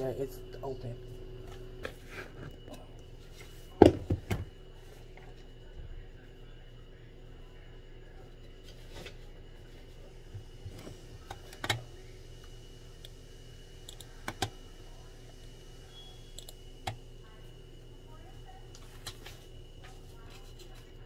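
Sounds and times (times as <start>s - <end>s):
steady electrical hum: 0.0s - 21.0s.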